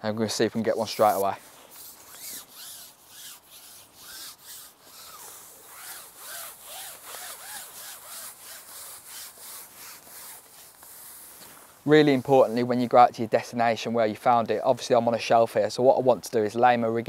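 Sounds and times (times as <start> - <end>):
fishing pole rubbing through hands: 0.5 - 12.8.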